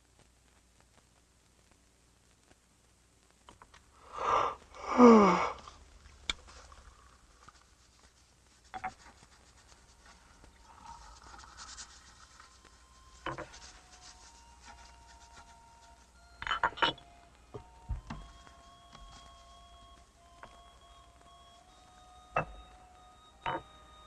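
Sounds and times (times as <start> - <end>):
faint clicks and rustling: 0.0 - 4.0, 5.6 - 24.0
person crying out: 4.2 - 5.6.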